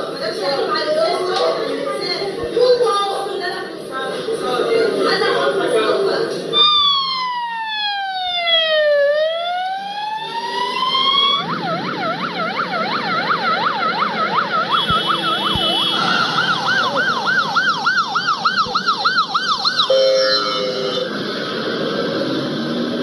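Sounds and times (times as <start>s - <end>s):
second siren warbling: 6.5s - 21.1s
ambulance siren wailing: 6.5s - 23.0s.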